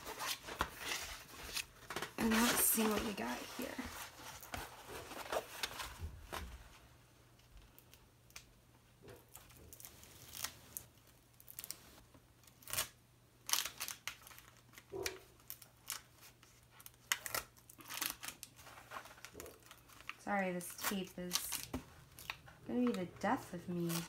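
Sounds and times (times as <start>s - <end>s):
plastic film crinkling: 0.0s - 6.4s, 12.6s - 24.0s.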